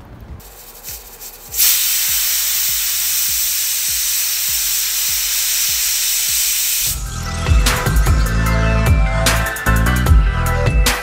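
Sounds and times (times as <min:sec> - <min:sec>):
music: 0:00.0 - 0:11.0
pressure cooker hissing steam: 0:00.4 - 0:07.0.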